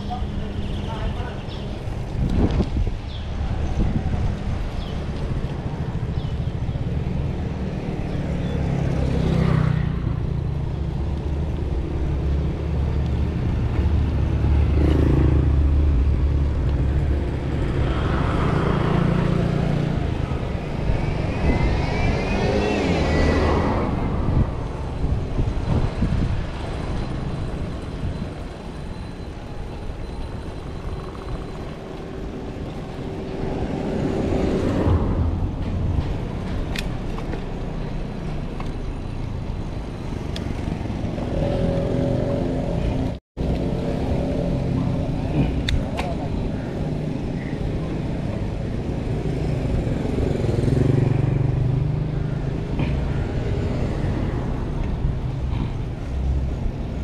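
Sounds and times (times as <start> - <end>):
low traffic rumble: 0.0 - 57.0
vehicles passing: 0.0 - 57.0.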